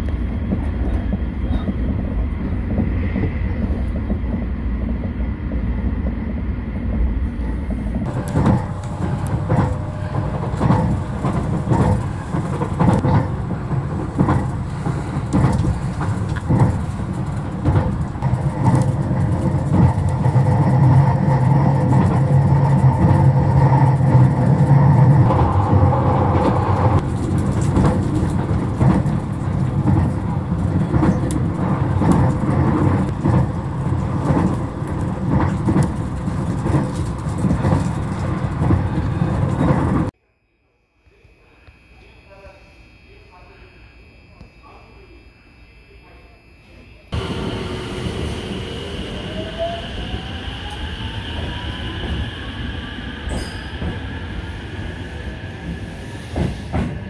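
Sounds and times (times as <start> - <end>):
low hum: 0.0 - 40.1
train wheels rumbling on rail: 0.0 - 40.1, 47.2 - 57.0.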